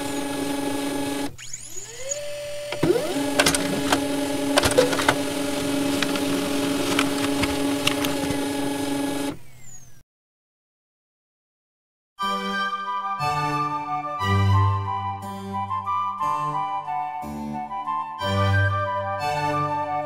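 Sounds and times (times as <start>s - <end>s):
electronic hum of held tones: 0.0s - 6.5s.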